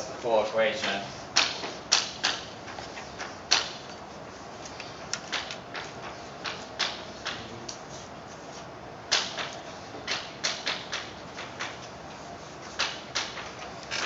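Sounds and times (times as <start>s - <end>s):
chalk writing on chalkboard: 0.7s - 5.1s, 9.5s - 13.6s.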